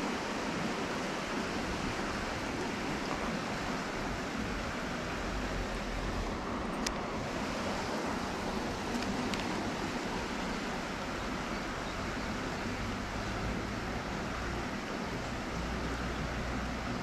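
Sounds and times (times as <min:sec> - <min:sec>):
fast-flowing stream rushing: 0:00.0 - 0:17.0
faint clicks: 0:08.9 - 0:09.6.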